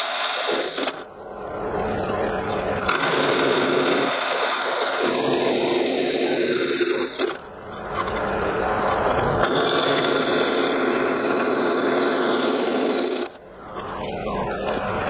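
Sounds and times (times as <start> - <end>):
drill press cutting steel: 2.8 - 7.4.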